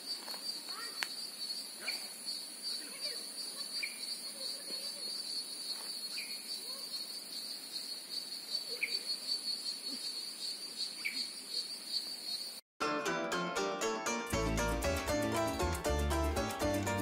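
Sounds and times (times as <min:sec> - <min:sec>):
insects buzzing: 0:00.0 - 0:12.6.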